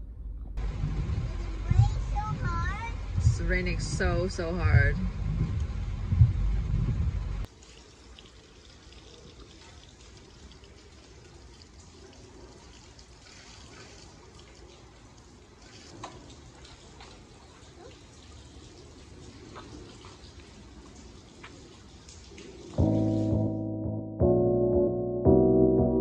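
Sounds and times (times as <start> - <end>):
rain pattering on wet concrete: 7.4 - 23.3
water drips: 7.4 - 23.5.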